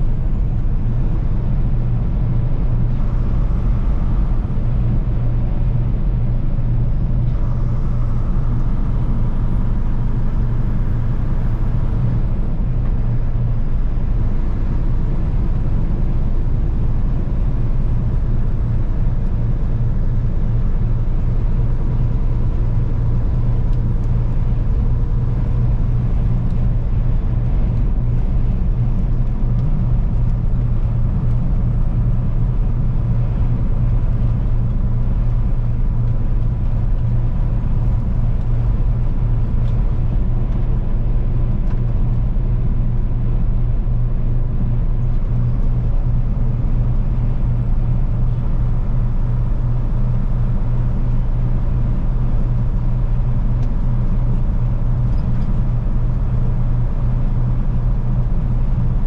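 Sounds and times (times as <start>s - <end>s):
faint steady whine: 0.0s - 59.0s
truck engine rumble in cab: 0.0s - 59.0s.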